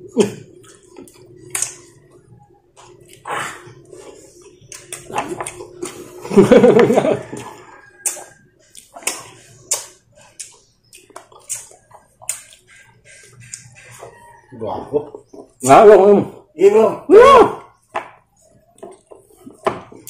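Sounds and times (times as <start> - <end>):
lip-smacking and chewing: 0.3 - 6.3, 7.3 - 14.1.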